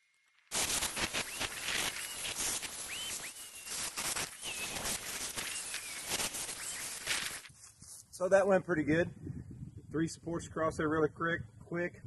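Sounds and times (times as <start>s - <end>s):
rough hiss: 0.5s - 8.2s
small birds chirping: 1.2s - 7.2s.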